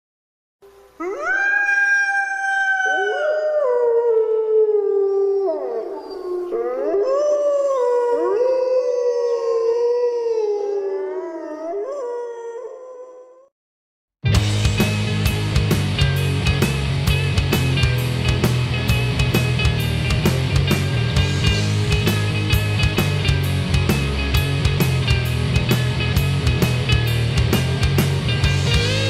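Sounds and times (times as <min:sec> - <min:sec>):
wolves howling: 0:01.0 - 0:13.5.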